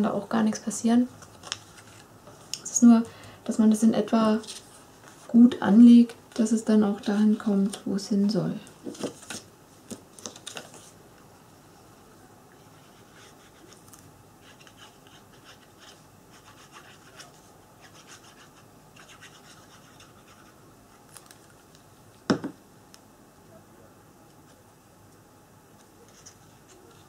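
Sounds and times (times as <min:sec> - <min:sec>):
scratching and rubbing on paper: 0:12.6 - 0:21.2, 0:26.0 - 0:27.0
glue bottle knocking on mat: 0:22.3 - 0:22.6.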